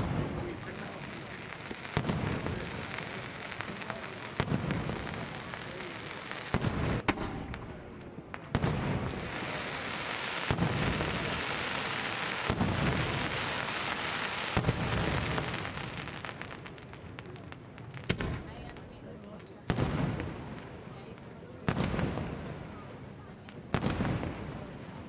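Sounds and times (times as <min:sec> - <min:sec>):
firework shells bursting: 0:00.0 - 0:16.6.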